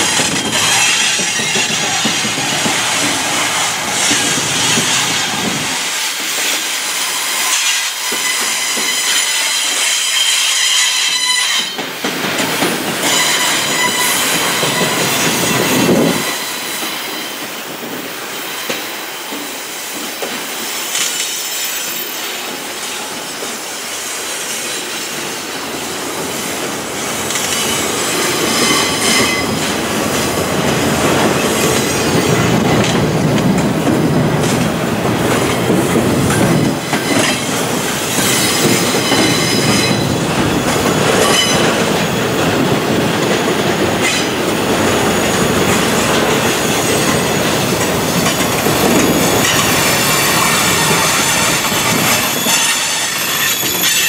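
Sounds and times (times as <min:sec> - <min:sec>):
train cars clanking: 0:00.0 - 0:54.0
train wheels rolling on rail: 0:00.0 - 0:54.0
high wheel squeal: 0:00.2 - 0:02.3, 0:07.0 - 0:11.8, 0:13.0 - 0:17.4, 0:27.5 - 0:29.7, 0:36.8 - 0:40.2, 0:41.2 - 0:41.8, 0:48.1 - 0:54.0.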